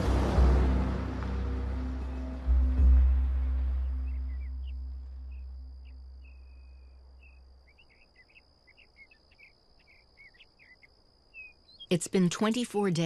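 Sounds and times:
low musical drone: 0.0 - 7.6
bird chirps: 2.0 - 12.7
high insect trill: 2.1 - 11.9.

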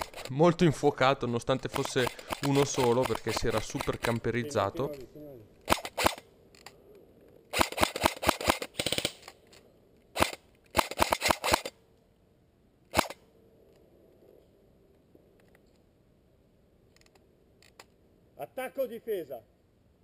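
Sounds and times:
airsoft rifle firing: 1.6 - 4.2, 5.6 - 6.3, 7.5 - 9.4, 10.2 - 11.8, 12.9 - 13.2.

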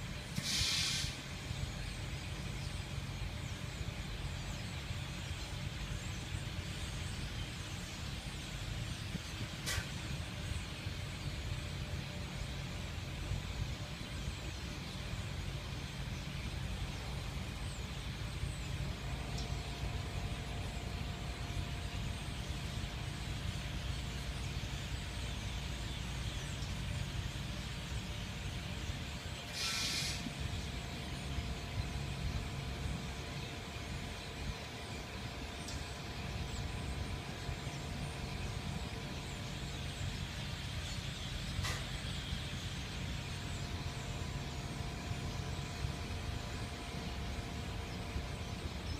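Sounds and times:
car road and engine noise: 0.0 - 48.9
loud hiss: 0.2 - 1.5, 29.5 - 30.5.

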